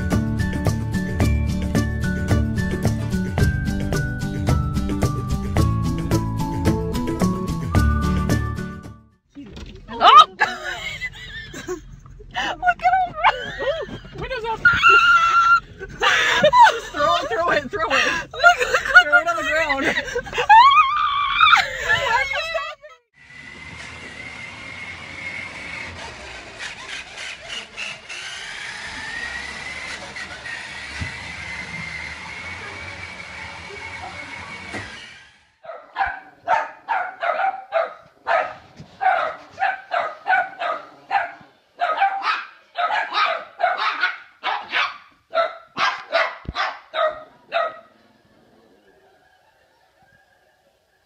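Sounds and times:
toy truck motor whining: 0:23.2 - 0:35.6
puppies barking high-pitched: 0:35.6 - 0:47.9.

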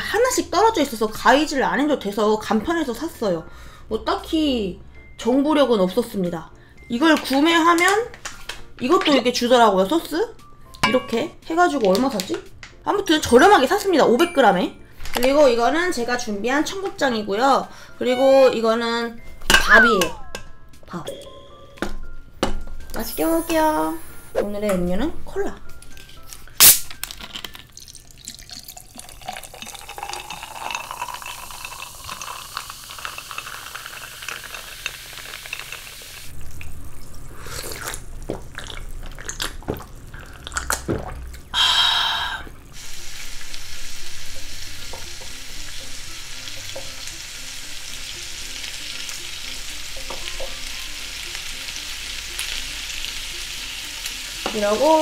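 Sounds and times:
ice clinking in glass: 0:26.6 - 0:36.0
cola pouring and fizzing: 0:27.1 - 0:41.6
meat sizzling on grill: 0:29.9 - 0:38.2, 0:42.7 - 0:55.0.

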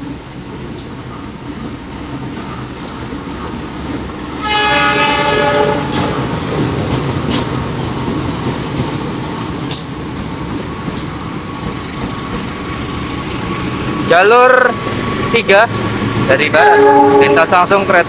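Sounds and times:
train wheels clicking over rail joints: 0:00.0 - 0:04.4, 0:05.2 - 0:16.3
locomotive horn blast: 0:04.4 - 0:06.3, 0:16.5 - 0:17.7.

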